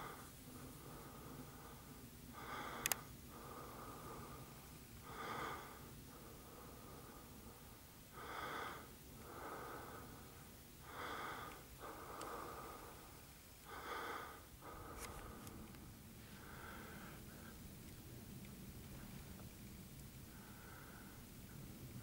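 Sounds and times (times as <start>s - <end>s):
person breathing: 0.0s - 17.7s, 20.3s - 21.3s
faint clicks: 2.6s - 3.1s, 11.4s - 12.4s, 14.9s - 15.9s, 17.8s - 20.2s.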